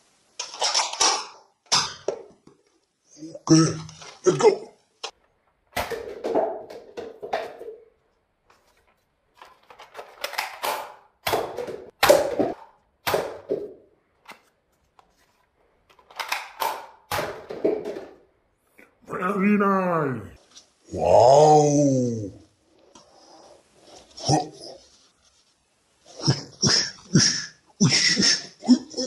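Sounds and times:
darts knocking over paper cups: 5.7 - 7.9, 9.8 - 14.5, 16.0 - 18.3.

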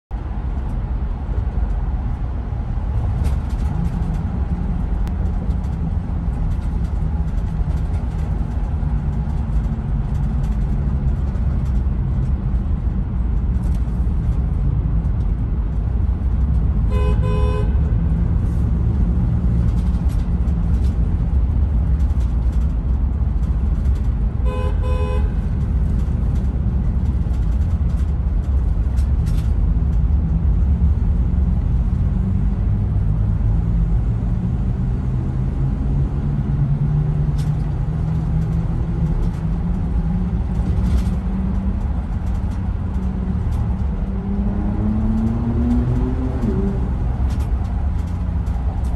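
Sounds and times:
traffic rumble in tunnel: 0.1 - 48.9
car horn blasts: 16.9 - 17.9, 24.4 - 25.5.

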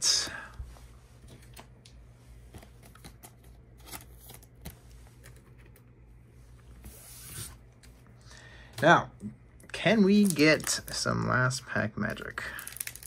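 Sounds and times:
trading cards clicking and rustling: 12.5 - 13.0.

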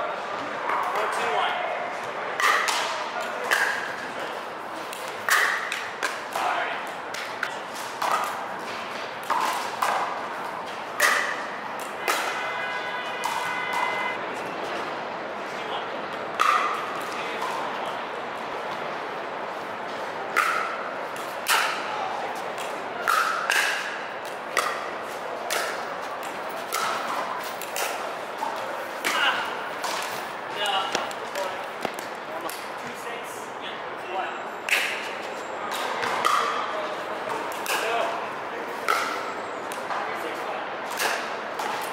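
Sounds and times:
pickleball paddle hits and bounces: 2.4 - 4.0, 4.9 - 12.4, 13.2 - 14.0, 16.2 - 17.7, 20.3 - 21.9, 22.5 - 32.7, 35.7 - 38.1, 38.8 - 40.1, 40.9 - 41.9.

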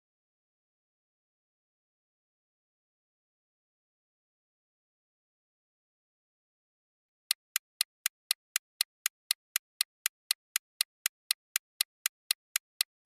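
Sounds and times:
countdown timer ticking: 7.3 - 12.9.

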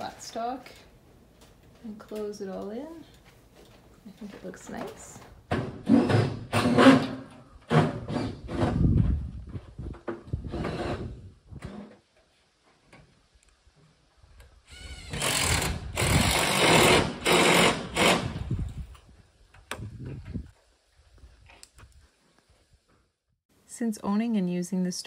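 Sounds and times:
power tool rattling: 14.9 - 18.5.

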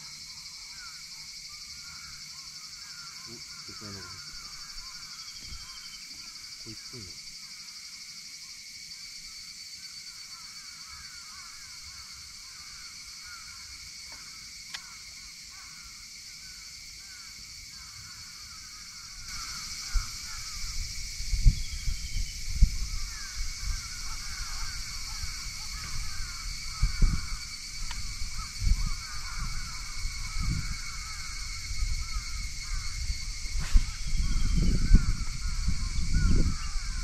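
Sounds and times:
constant high buzz: 0.0 - 37.0
bird chirps: 3.3 - 7.0
sharp click: 14.1 - 14.9.

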